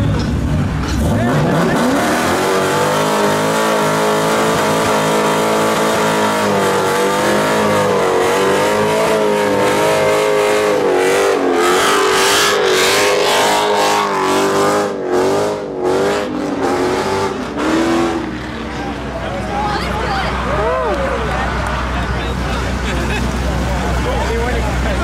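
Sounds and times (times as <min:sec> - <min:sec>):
car engine at high revs: 0:00.0 - 0:25.0.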